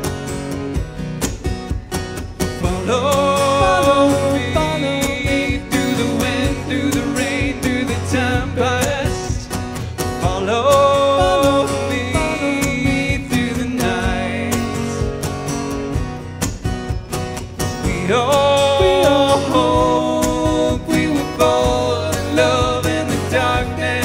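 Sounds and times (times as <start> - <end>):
acoustic guitars strummed: 0.0 - 24.0
man singing: 2.5 - 15.2, 17.8 - 24.0.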